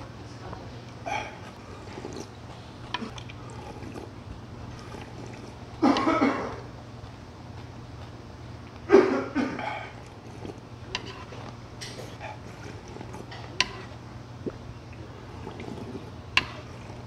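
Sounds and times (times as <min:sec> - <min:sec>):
steady low hum: 0:00.0 - 0:17.0
man coughing: 0:05.8 - 0:06.7, 0:08.9 - 0:10.0.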